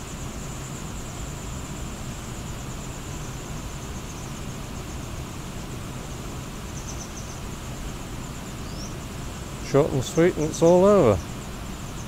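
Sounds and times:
nestlings cheeping: 9.6s - 12.0s.

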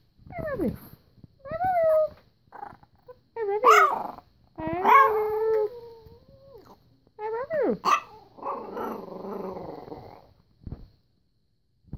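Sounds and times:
dog yowling: 3.6s - 4.2s, 4.8s - 6.7s.

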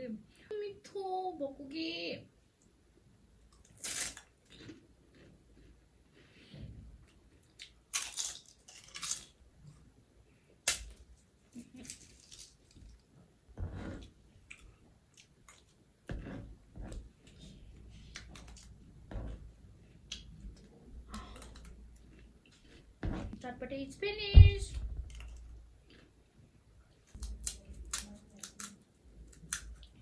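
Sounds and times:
chewing and crunching: 3.5s - 9.8s, 14.0s - 23.0s, 25.1s - 30.0s
spoon scraping tray: 13.6s - 14.1s, 16.1s - 17.1s.

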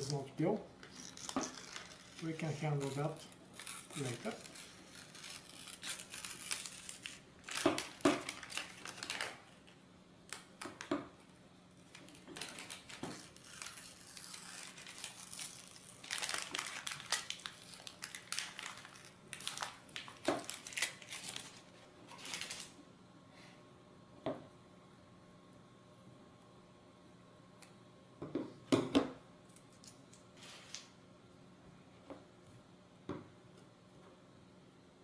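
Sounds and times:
paper backing crinkling: 0.8s - 10.9s, 11.8s - 22.8s.

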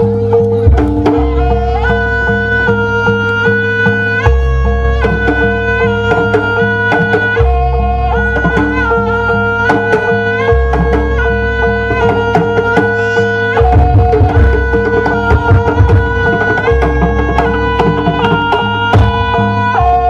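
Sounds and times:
hand drums beating: 0.0s - 20.0s
reed pipe melody: 0.0s - 20.0s.

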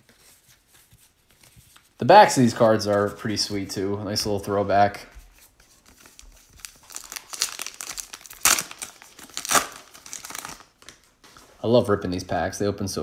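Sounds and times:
wrapper crinkling and tearing: 5.8s - 11.1s.

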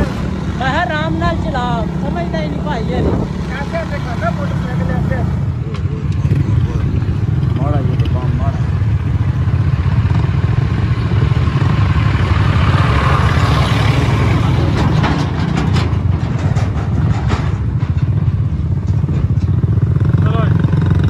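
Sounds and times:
motorcycle engine: 0.0s - 21.0s
road noise: 0.0s - 21.0s
clattering knocks: 14.5s - 19.6s.

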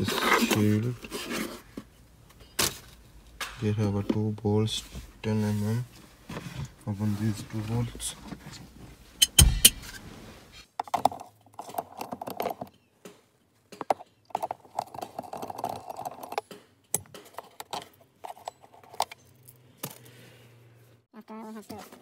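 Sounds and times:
hand tool clicking on bolt: 9.2s - 9.8s.

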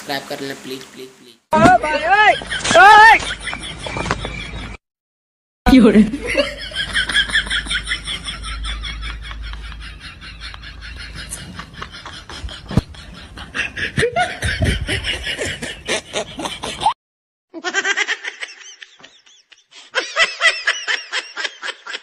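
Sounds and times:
child laughing and giggling: 13.4s - 17.0s, 17.6s - 22.0s.

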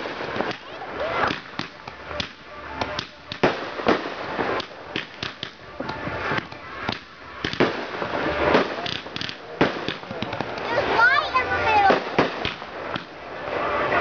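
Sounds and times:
fireworks bangs and pops: 0.0s - 13.3s.

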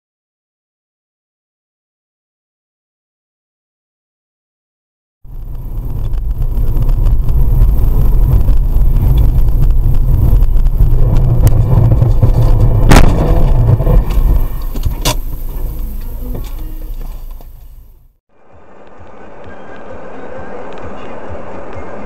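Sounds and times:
road and engine rumble: 5.3s - 22.0s.

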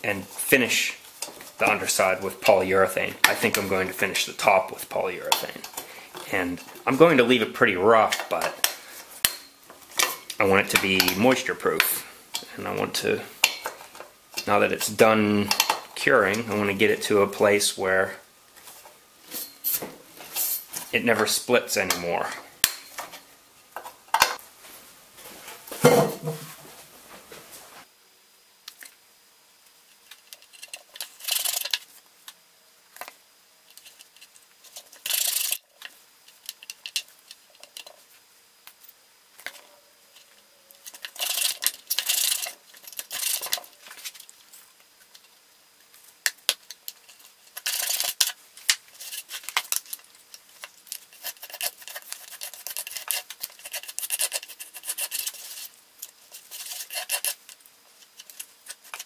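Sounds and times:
putty knife scraping filler: 51.1s - 55.7s, 56.3s - 57.4s.

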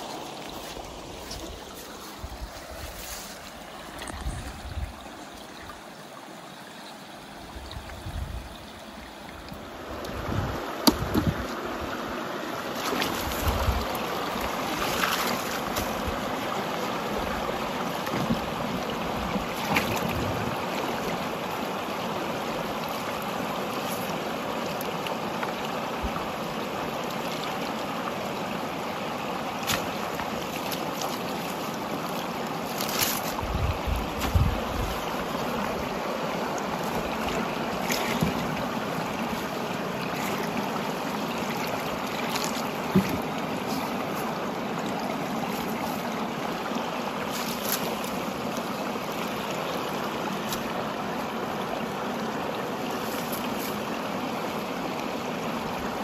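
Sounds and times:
low wind buffets: 9.8s - 12.0s, 33.3s - 36.0s.

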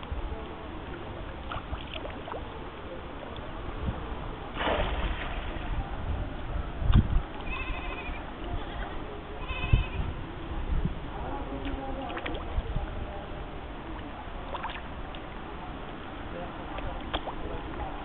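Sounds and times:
goat bleating: 7.4s - 8.2s, 9.4s - 10.0s.

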